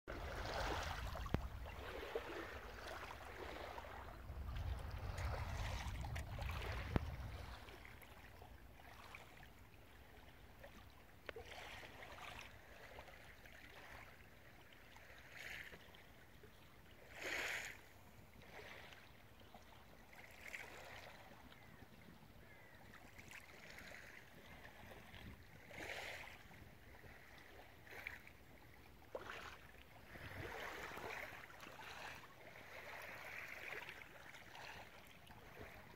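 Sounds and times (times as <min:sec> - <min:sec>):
lake waves lapping: 0:00.1 - 0:35.9
low rumble: 0:04.1 - 0:08.2.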